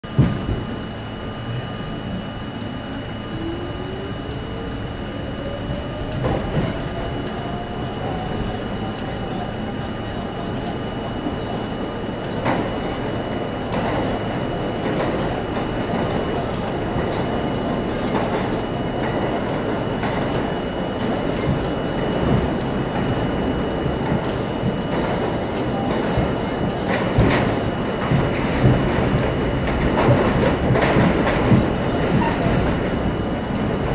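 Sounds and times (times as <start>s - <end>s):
subway train whine: 0.0s - 33.9s
wheels rumbling on rail: 0.0s - 33.9s
sharp clacks of wheels: 21.4s - 33.0s.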